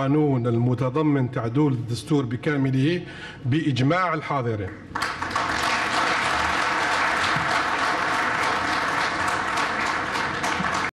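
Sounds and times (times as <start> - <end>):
crowd applauding: 4.9 - 10.9.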